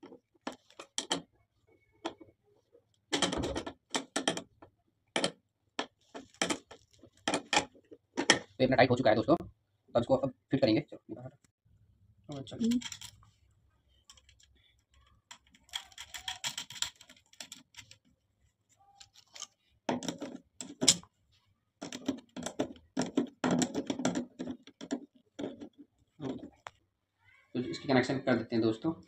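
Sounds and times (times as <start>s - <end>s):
metal clicking and rattling: 12.4s - 13.3s, 14.0s - 18.1s, 19.0s - 21.1s, 21.8s - 26.8s.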